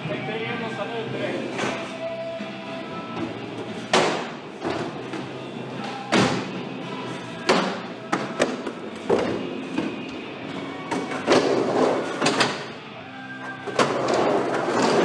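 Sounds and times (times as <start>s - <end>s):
skateboard wheels rolling: 10.6s - 12.6s, 13.7s - 15.0s.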